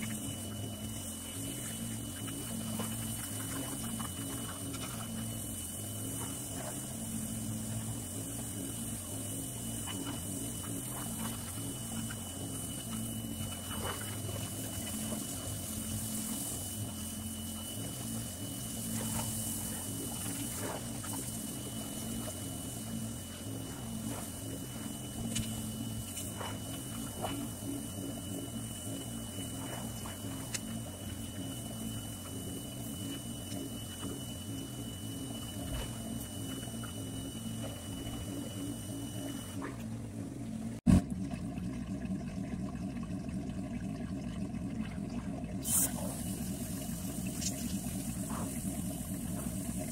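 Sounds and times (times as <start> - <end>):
pressure washer humming: 0.0 - 40.8, 45.6 - 49.9
water spray hissing: 45.6 - 49.9.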